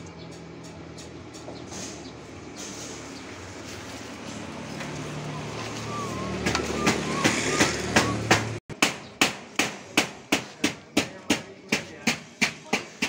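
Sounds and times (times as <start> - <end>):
sharp knocks: 6.4 - 13.0.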